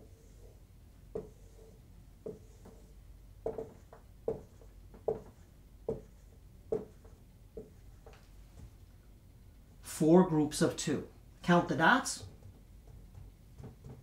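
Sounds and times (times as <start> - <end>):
marker tapping on whiteboard: 1.1 - 8.2.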